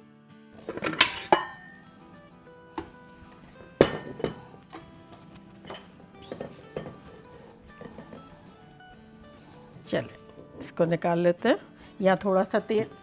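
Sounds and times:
background music: 0.0s - 13.0s
metal bowl clanking: 0.6s - 2.0s, 2.8s - 11.1s.

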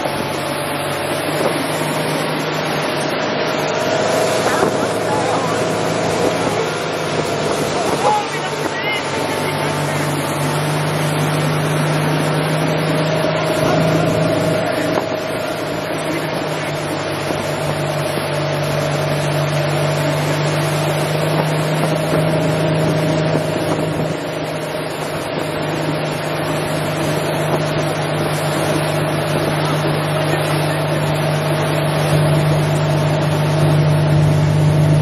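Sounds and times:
motorboat engine drone: 0.0s - 35.0s
rushing water: 0.0s - 35.0s.

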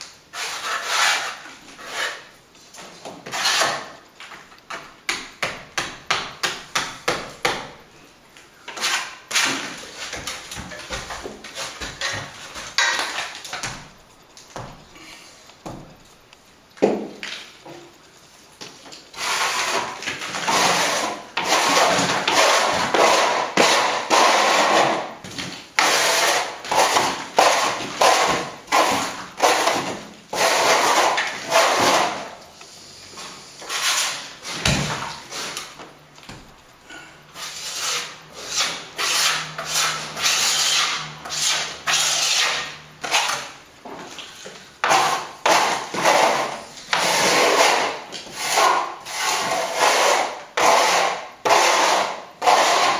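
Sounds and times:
metal scraper on plastered wall: 0.3s - 4.0s, 8.7s - 13.8s, 19.1s - 32.4s, 33.6s - 35.8s, 37.3s - 43.6s, 44.4s - 52.9s.

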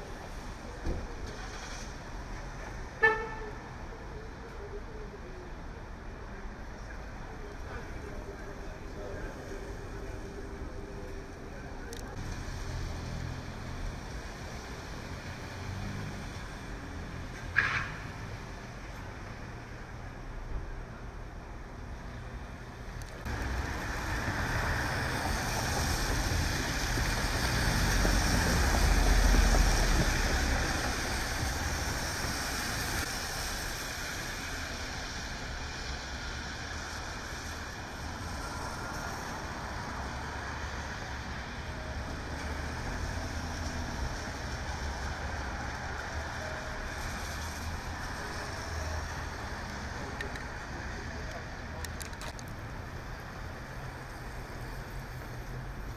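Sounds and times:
tyres hissing on wet pavement: 0.0s - 3.4s, 12.2s - 18.9s, 23.2s - 51.8s
rain: 0.0s - 20.4s, 22.0s - 55.9s.

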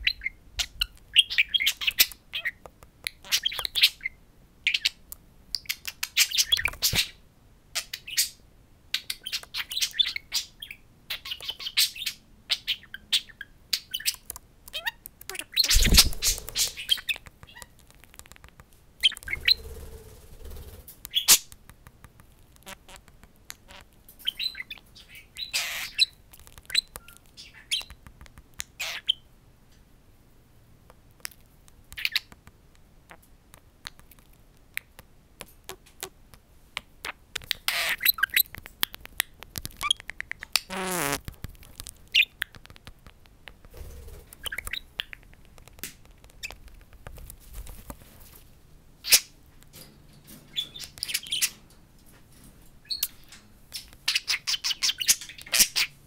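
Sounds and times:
budgerigars chirping and chattering: 0.0s - 2.6s, 3.2s - 5.0s, 9.0s - 17.7s, 19.0s - 19.7s, 23.6s - 28.0s, 28.8s - 29.2s, 37.5s - 38.5s, 50.5s - 51.6s, 52.9s - 55.9s.

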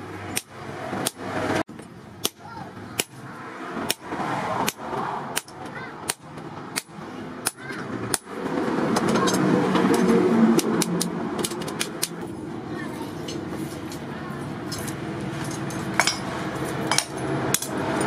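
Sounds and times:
hammer striking chisel on metal: 0.3s - 3.2s, 4.6s - 8.4s, 15.6s - 18.0s.

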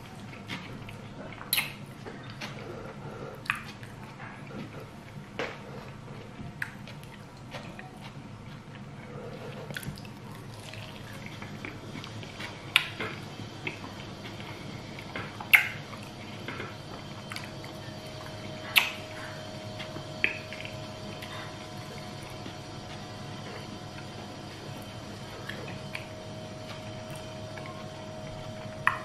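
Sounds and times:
wet chewing: 0.0s - 29.0s.

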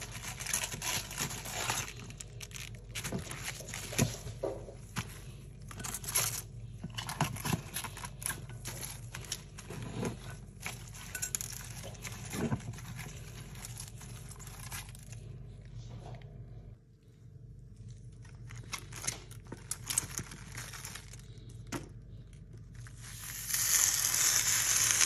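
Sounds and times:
cabbage leaves crinkling: 0.0s - 4.4s, 7.4s - 15.3s, 18.0s - 21.5s.

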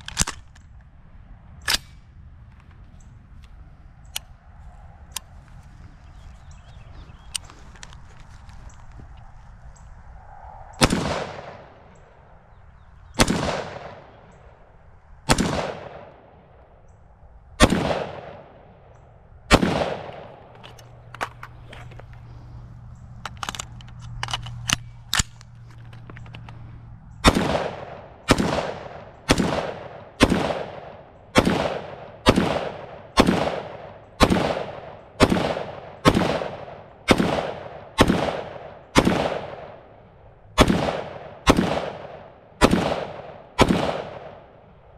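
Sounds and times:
rifle shots with echo: 10.8s - 12.2s, 13.0s - 16.8s, 17.6s - 21.6s, 27.2s - 44.9s.

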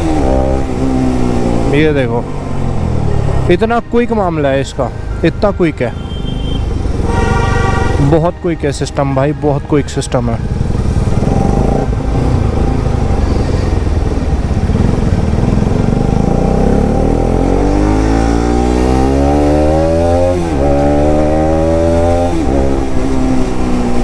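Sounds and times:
motorcycle engine accelerating hard: 0.0s - 2.2s, 10.4s - 24.0s.

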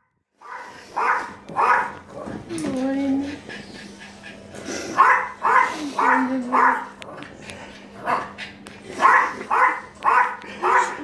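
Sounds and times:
small dog barking: 0.4s - 2.0s, 5.0s - 7.0s, 9.0s - 11.0s.

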